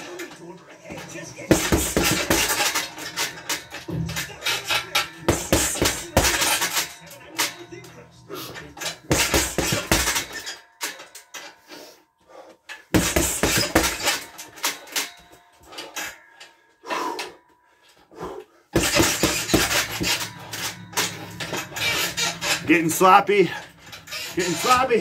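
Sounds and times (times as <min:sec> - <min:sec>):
gloves punching heavy bag: 0:01.5 - 0:02.9, 0:05.3 - 0:06.8, 0:09.1 - 0:10.4, 0:12.9 - 0:14.3, 0:18.2 - 0:20.3.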